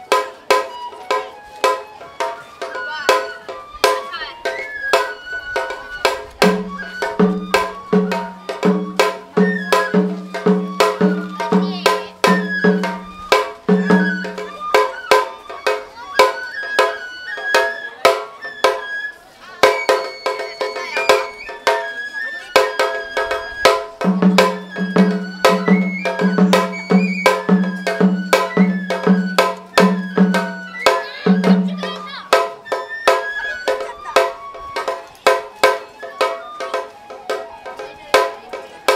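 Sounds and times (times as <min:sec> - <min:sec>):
bamboo flute melody: 0:00.0 - 0:38.9
deep drum beat: 0:03.1 - 0:15.0, 0:22.7 - 0:33.0.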